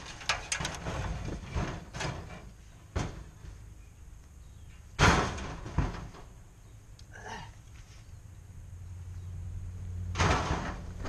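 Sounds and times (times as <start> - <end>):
scrap metal clattering into trailer: 0.0 - 3.5, 10.2 - 11.0
loud metal crash: 5.0 - 6.2, 10.1 - 11.0.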